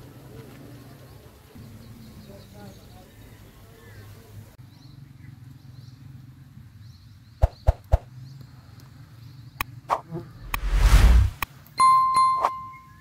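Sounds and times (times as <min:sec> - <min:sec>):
loud rushing noise: 0:10.4 - 0:11.4.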